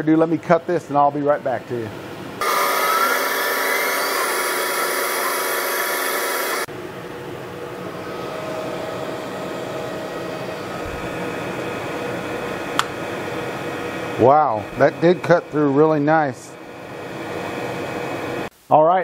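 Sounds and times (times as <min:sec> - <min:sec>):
machine hum: 0:01.8 - 0:18.5
laser cutter hiss and whine: 0:02.4 - 0:06.7, 0:08.1 - 0:18.5.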